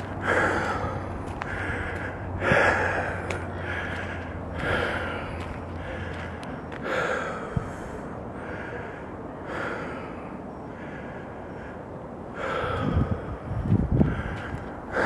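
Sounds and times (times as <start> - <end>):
heavy breathing: 0.0 - 15.0.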